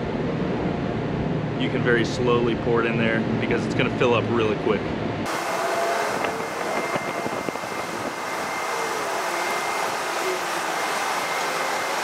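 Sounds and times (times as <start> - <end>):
road traffic: 0.0 - 12.0
faint high whine: 5.3 - 12.0
wind on microphone: 6.0 - 8.7.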